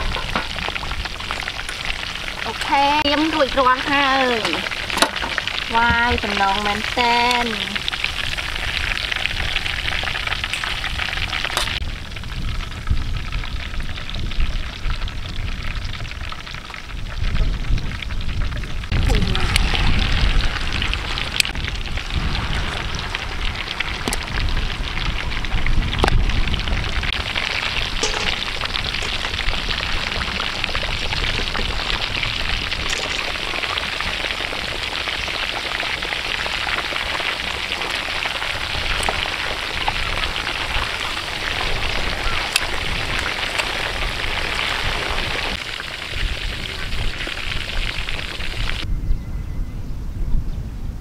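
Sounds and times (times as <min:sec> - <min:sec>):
ribs sizzling in hot oil: 0:00.0 - 0:48.8
low rumble: 0:07.8 - 0:34.4.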